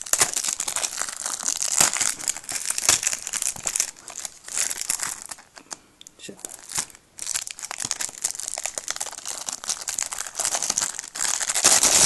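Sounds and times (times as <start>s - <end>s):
cellophane crinkling and crackling: 0.0s - 12.0s.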